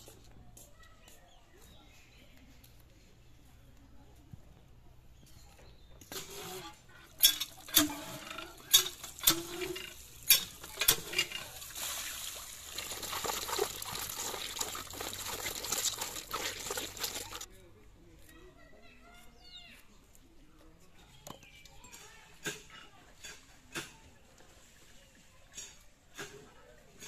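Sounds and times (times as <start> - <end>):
hand pump handle clanking: 7.2 - 11.7
water gushing onto fish: 11.5 - 17.5.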